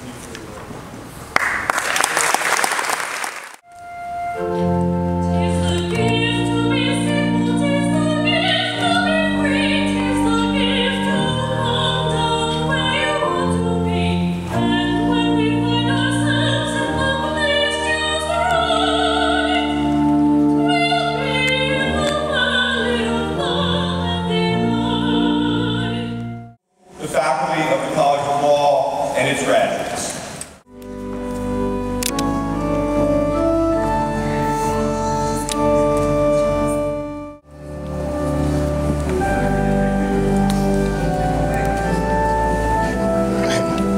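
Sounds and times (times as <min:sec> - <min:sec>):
choir singing with vibrato: 0:20.7 - 0:26.0
sustained chords: 0:30.7 - 0:43.9.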